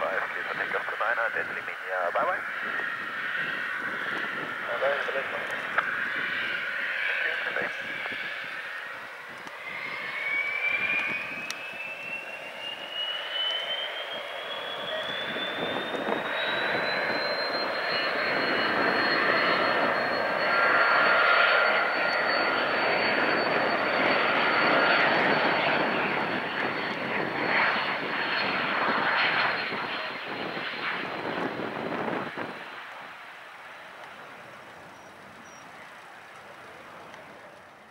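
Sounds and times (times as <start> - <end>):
jet rush: 0.0 - 37.8
jet engine whine: 0.0 - 37.9.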